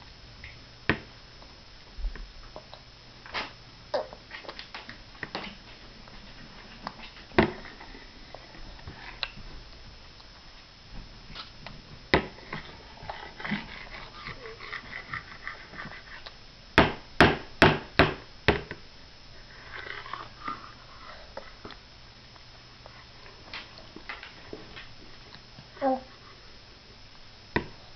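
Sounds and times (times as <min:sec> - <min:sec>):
toddler mouth sounds: 0:04.0 - 0:04.2.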